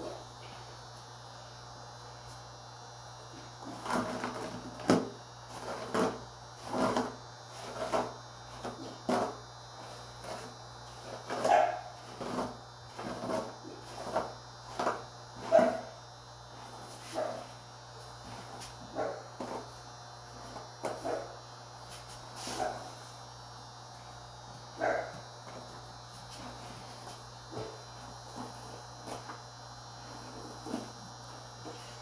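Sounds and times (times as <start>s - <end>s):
low electrical hum: 0.0s - 32.0s
dog barking: 11.5s - 11.9s, 24.8s - 25.2s.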